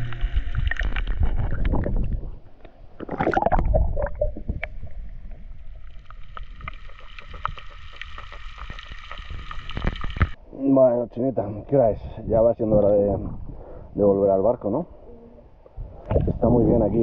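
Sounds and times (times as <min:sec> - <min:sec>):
low rumble: 0:00.0 - 0:02.6
sea water sloshing and gurgling: 0:00.0 - 0:10.4.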